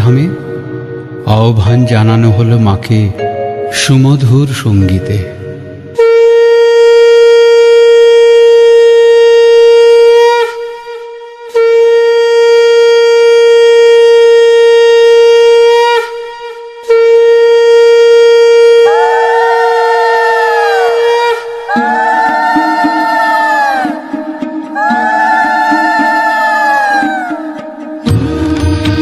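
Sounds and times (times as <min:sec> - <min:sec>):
conch shell blasts: 0:06.0 - 0:21.6
falling pitch tone: 0:18.0 - 0:27.7.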